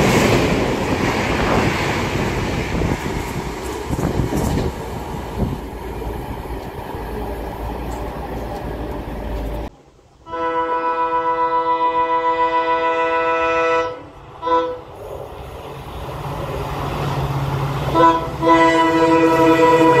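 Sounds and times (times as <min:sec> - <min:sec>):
train coaches rushing past: 0:00.0 - 0:11.6, 0:12.3 - 0:20.0
locomotive horn: 0:10.2 - 0:14.9, 0:17.9 - 0:20.0.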